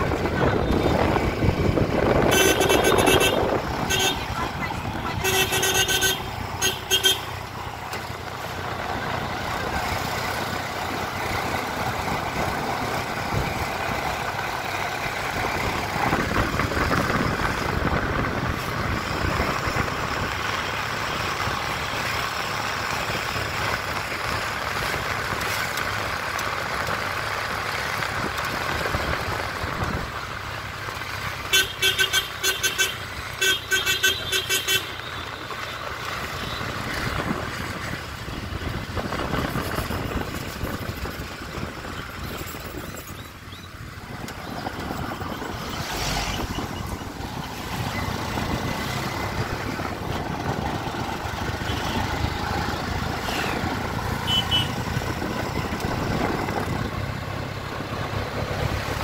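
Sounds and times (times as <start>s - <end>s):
engine and road rush: 0.0s - 59.0s
vehicle horn beeps: 2.2s - 4.3s, 5.1s - 7.3s, 31.5s - 35.4s, 54.2s - 54.8s.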